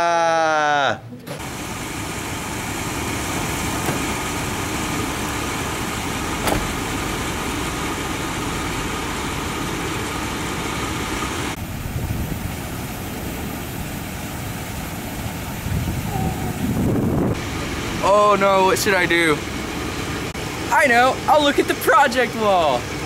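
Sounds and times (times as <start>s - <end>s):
truck engine idling: 1.4s - 23.0s
low knocks: 3.3s - 5.6s, 6.3s - 7.1s.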